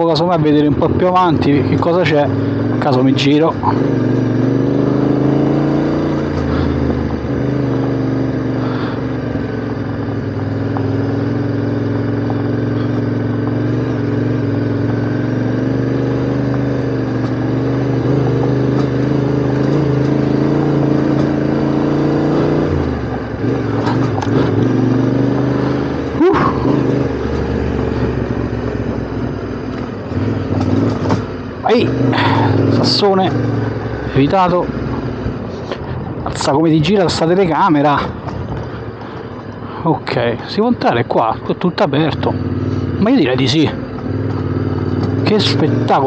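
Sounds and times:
motorcycle engine running at low revs: 0:00.0 - 0:46.0
knocks and clatter over bumps: 0:16.4 - 0:21.7, 0:22.6 - 0:25.5, 0:26.1 - 0:32.4, 0:37.8 - 0:39.6, 0:43.7 - 0:45.3.

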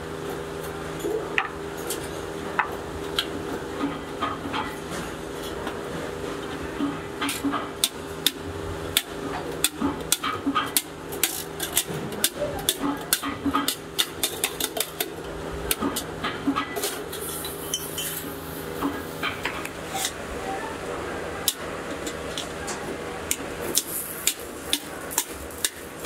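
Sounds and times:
hammer striking sheet steel: 0:23.3 - 0:26.0.

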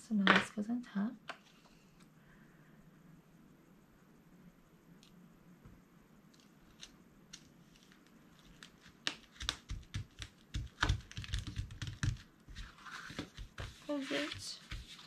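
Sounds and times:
paper rustling: 0:10.6 - 0:15.0.

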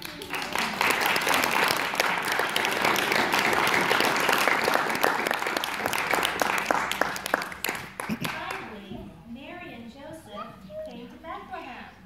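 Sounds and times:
audience applause: 0:00.0 - 0:08.6.

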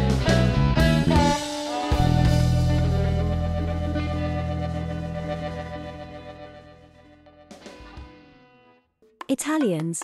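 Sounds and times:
sustained music chord: 0:00.4 - 0:07.0.

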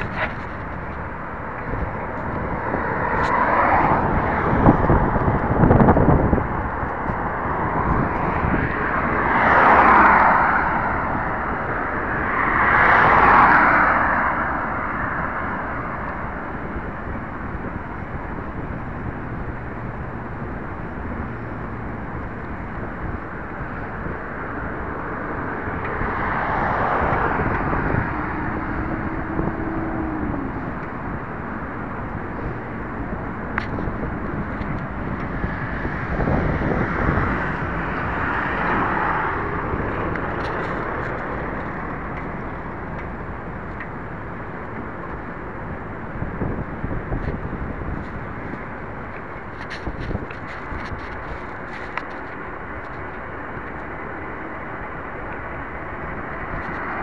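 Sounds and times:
cars passing: 0:00.0 - 0:57.0
wind and road rumble: 0:00.0 - 0:57.0.

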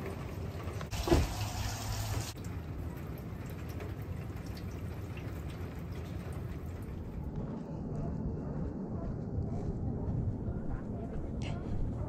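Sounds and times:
steady rain: 0:00.0 - 0:07.3
water drips: 0:00.0 - 0:07.4.

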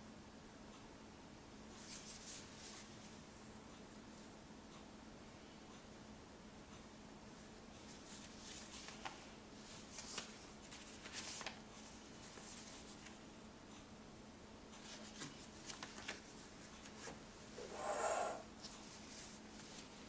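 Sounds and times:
paper maps rustling and crinkling: 0:01.8 - 0:03.1, 0:07.8 - 0:13.2, 0:14.8 - 0:17.6, 0:18.6 - 0:20.0.

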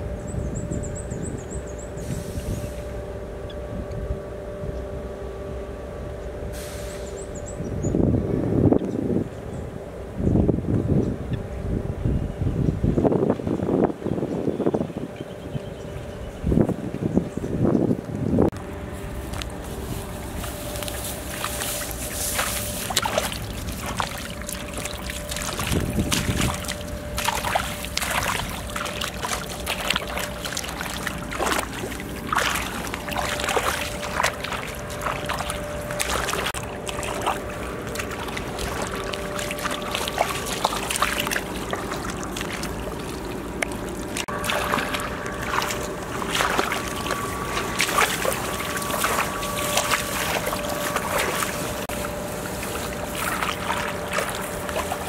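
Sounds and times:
feet wading through muddy water: 0:18.0 - 0:55.0.

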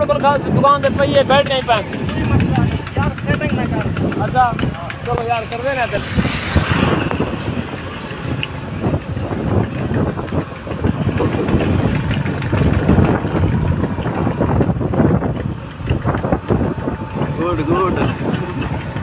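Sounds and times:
road noise: 0:02.8 - 0:17.4.

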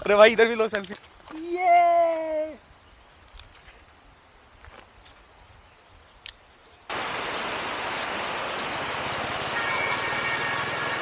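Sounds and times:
faint outdoor ambience: 0:00.0 - 0:11.0
click: 0:06.2 - 0:06.4
loud even hiss: 0:06.9 - 0:11.0.

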